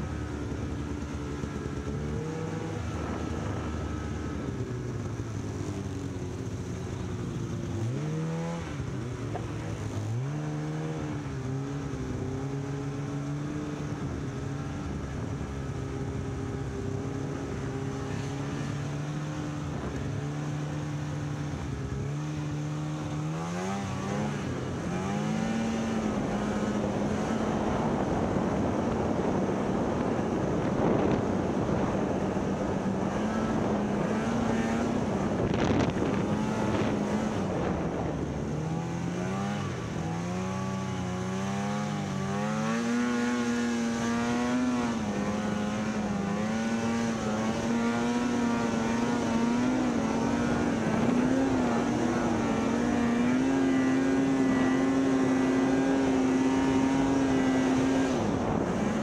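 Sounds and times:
snowmobile engine running: 0.0 - 59.0
wind and snow rushing: 21.6 - 59.0.

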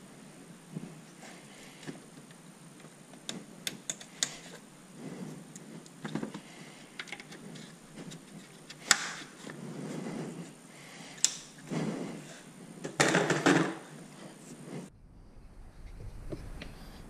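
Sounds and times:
plastic clips clicking: 8.6 - 9.3.

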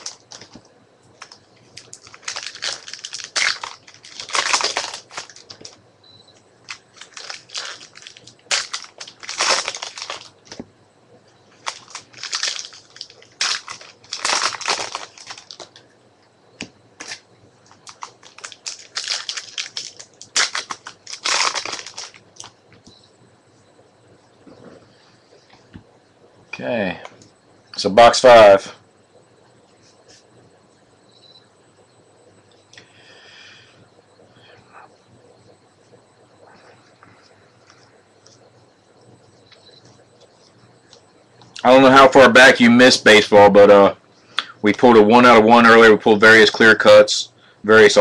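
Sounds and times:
foil wrapper crinkling and tearing: 0.0 - 0.6, 1.2 - 5.8, 6.6 - 10.6, 11.6 - 15.8, 17.0 - 22.5
cards rustling: 1.2 - 5.8, 6.7 - 10.6, 11.6 - 15.8, 16.6 - 22.5.

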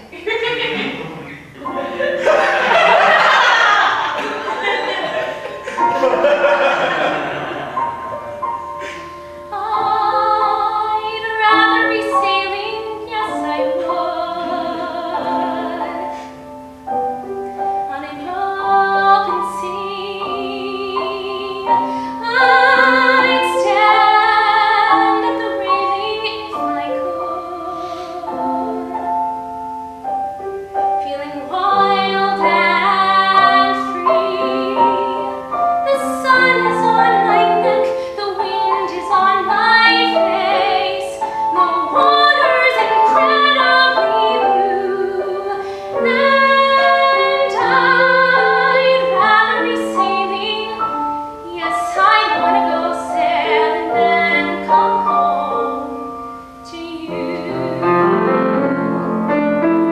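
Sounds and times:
grand piano: 0.0 - 59.9
woman singing classically: 9.5 - 16.3, 17.8 - 29.3, 31.0 - 56.0, 56.6 - 58.7.

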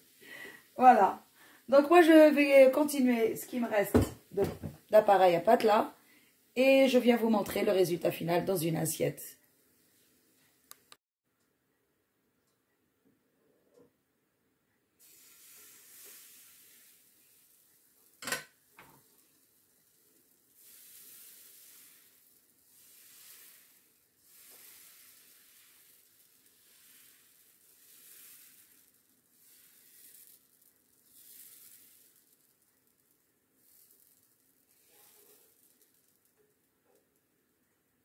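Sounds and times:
batter sizzling on hot plate: 15.0 - 37.2.

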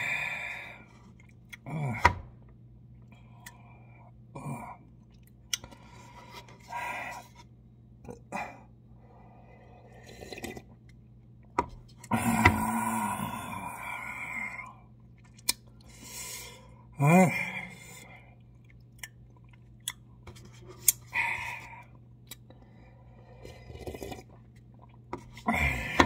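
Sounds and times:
person chewing and slurping: 23.2 - 26.0.

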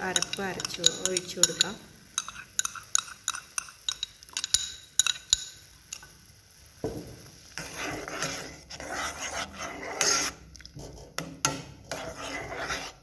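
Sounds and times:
ladle stirring simmering milk: 7.6 - 13.0.

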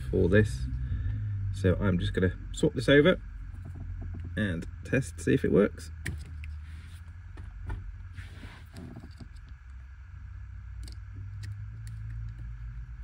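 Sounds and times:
steady low hum: 0.0 - 13.0
brief scrape: 8.1 - 8.8.

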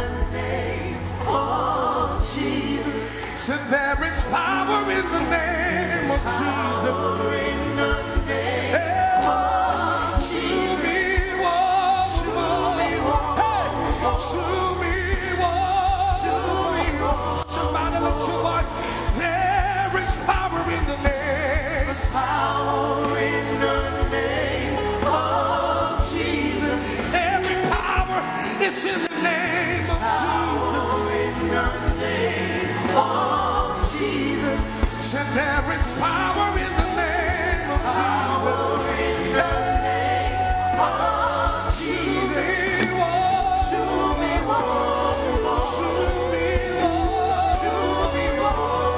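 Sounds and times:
gospel band with voices singing: 0.0 - 48.9.

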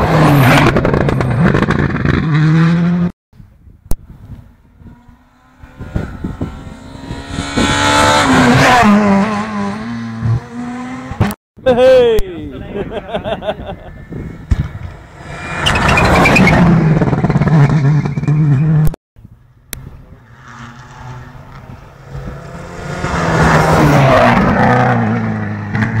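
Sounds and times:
rally cars passing at full throttle: 4.2 - 11.4, 13.0 - 26.0.

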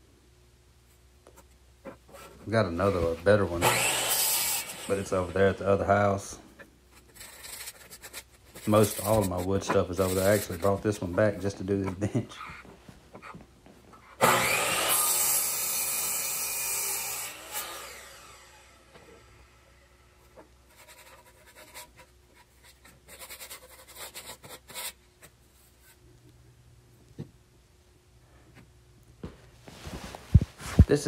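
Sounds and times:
miter saw cutting wood: 2.9 - 5.8, 14.2 - 19.1
saw blade winding down: 3.6 - 5.4, 14.2 - 18.8.

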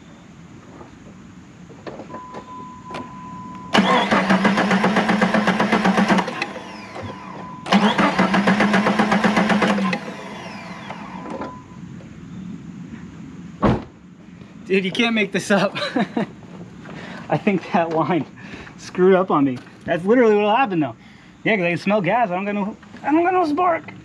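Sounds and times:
engine cranking by starter: 3.7 - 11.6.

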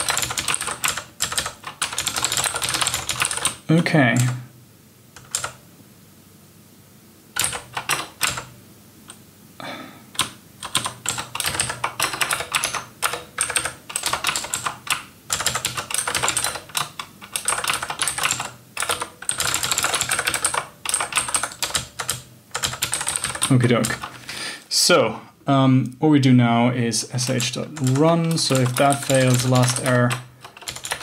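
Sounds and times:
fast typing on keyboard: 0.0 - 3.6, 5.2 - 5.6, 7.4 - 8.5, 10.2 - 24.2, 27.2 - 31.0.

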